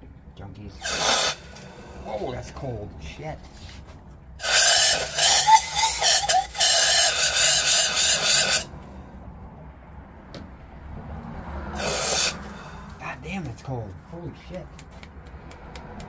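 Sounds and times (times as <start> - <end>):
compressed air spraying: 0.8 - 2.0, 4.4 - 8.7, 11.8 - 12.8.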